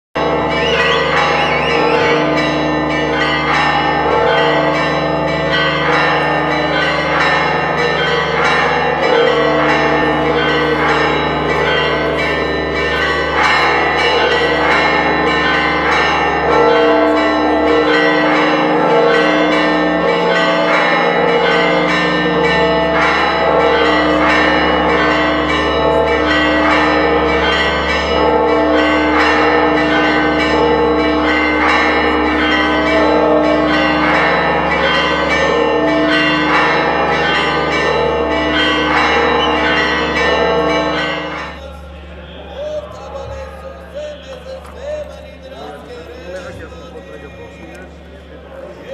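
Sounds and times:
church bells pealing: 0.2 - 48.9.

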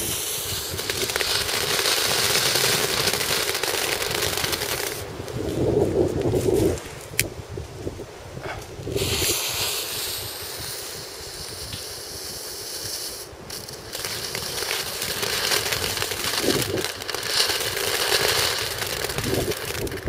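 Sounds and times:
firework fountain spitting sparks: 0.0 - 5.3, 8.9 - 20.0.

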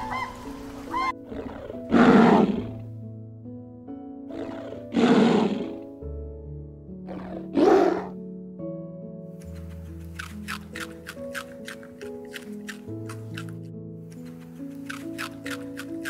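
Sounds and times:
background music: 0.0 - 16.0
lion roaring: 1.2 - 2.8, 4.3 - 5.8, 7.1 - 8.2.

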